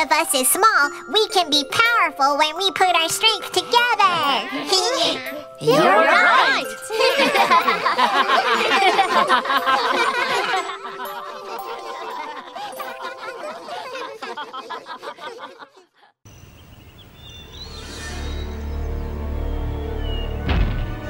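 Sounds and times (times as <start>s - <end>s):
cartoon characters laughing: 5.6s - 16.1s.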